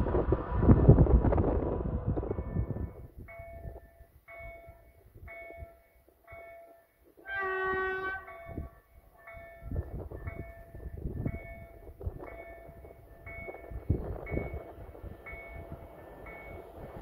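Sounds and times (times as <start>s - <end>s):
locomotive horn: 7.2s - 8.4s.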